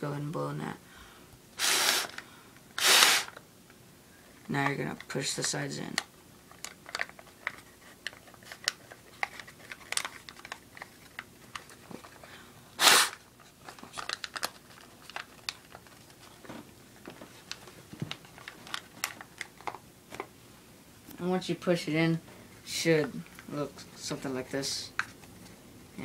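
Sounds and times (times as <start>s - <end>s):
paper crinkling and crackling: 6.6s - 12.3s, 13.4s - 20.3s.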